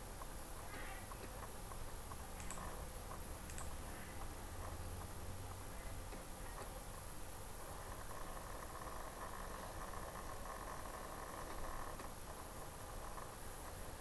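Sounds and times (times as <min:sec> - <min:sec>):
faint clicks: 0:01.1 - 0:04.3.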